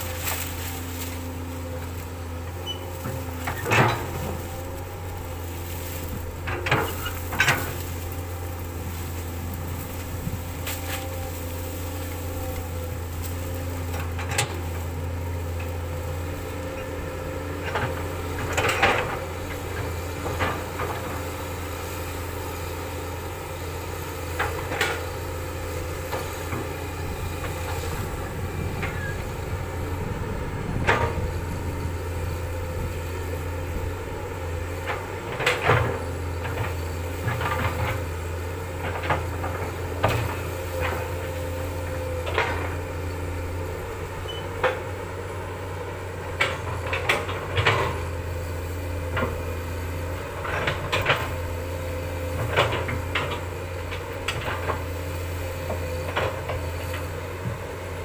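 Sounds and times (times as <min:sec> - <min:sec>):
bucket cracking through brush: 0:00.0 - 0:02.1
excavator diesel engine running: 0:00.0 - 0:58.0.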